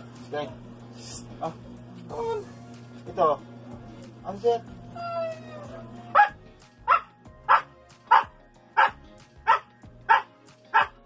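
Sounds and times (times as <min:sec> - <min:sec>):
dog barking: 0:06.1 - 0:11.0.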